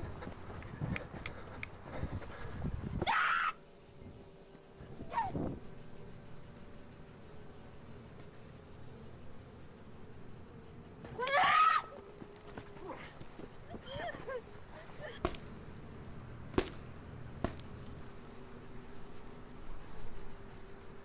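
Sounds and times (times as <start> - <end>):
cicadas buzzing: 0.0 - 21.0
woman screaming: 3.0 - 3.6, 11.2 - 12.0.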